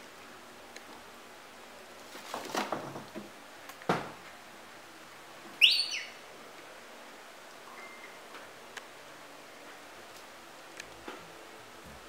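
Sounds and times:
plastic bags rustling: 2.0s - 3.1s.

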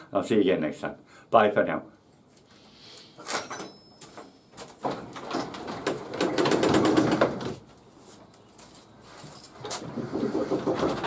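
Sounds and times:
garage door rattling open: 4.6s - 7.7s, 9.7s - 11.0s
garage door knocks and clatters: 4.8s - 7.7s, 9.9s - 11.0s.

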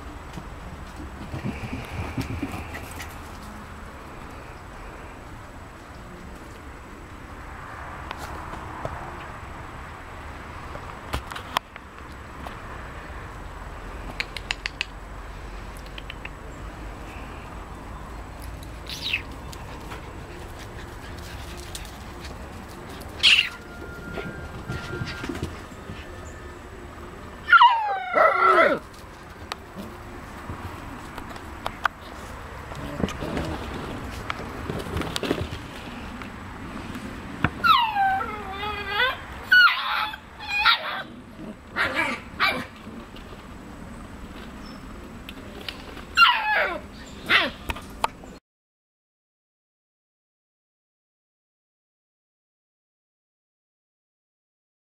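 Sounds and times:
puppy squeaking: 18.8s - 19.3s, 23.2s - 25.4s
puppy whining cry: 23.2s - 25.4s, 37.6s - 42.7s, 46.2s - 47.6s.

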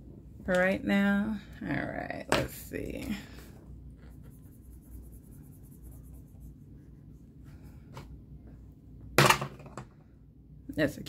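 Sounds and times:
marker scratching on paper: 4.0s - 7.2s.

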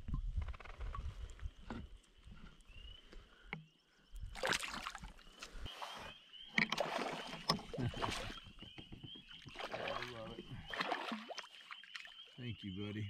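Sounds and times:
water splashing and sloshing: 4.2s - 12.5s.

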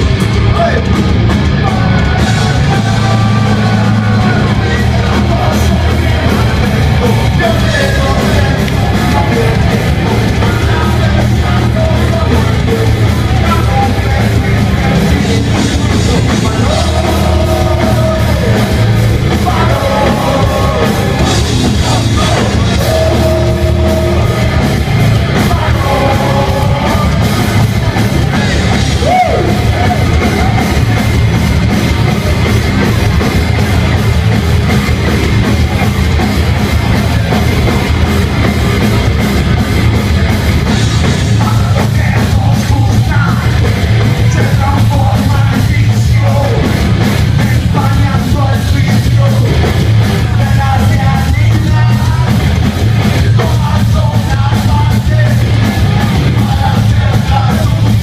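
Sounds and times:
shouted vocals: 0.0s - 34.0s
heavy metal band playing live: 0.0s - 58.0s.

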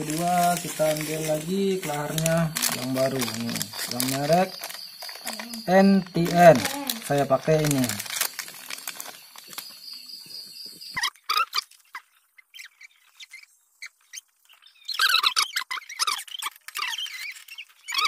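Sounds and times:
plastic packet crinkling: 0.0s - 10.6s
small birds chirping: 0.0s - 18.0s.

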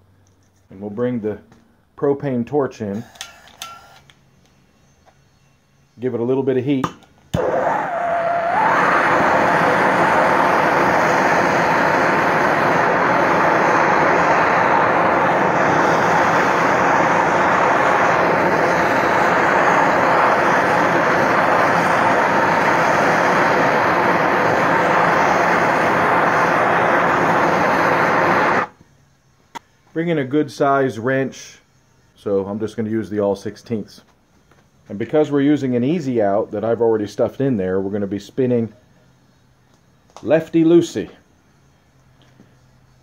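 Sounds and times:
propane torch hissing: 7.3s - 28.8s.

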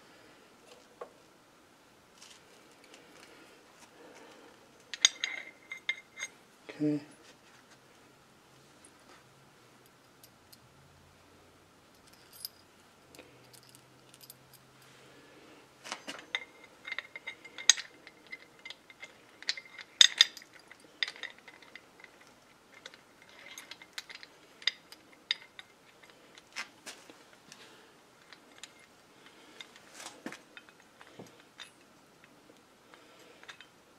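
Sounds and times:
metal bolts clinking: 4.8s - 6.4s, 15.9s - 26.6s.

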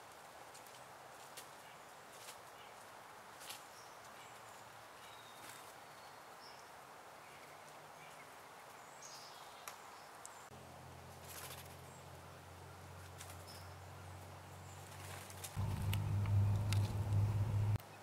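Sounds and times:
small clicks and rustles: 0.0s - 2.6s, 11.1s - 11.9s, 13.0s - 13.6s, 14.8s - 17.8s
low hum: 15.6s - 17.8s.

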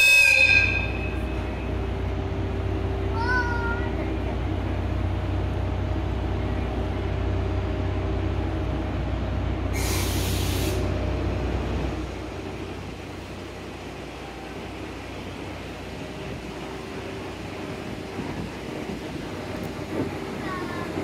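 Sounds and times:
electric locomotive humming: 0.0s - 21.0s
compressed air hiss: 9.7s - 10.9s.

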